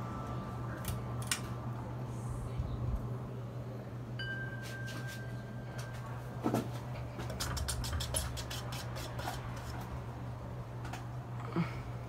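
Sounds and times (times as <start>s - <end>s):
ceiling fan motor humming: 0.0s - 12.0s
thin high tone: 4.2s - 6.4s.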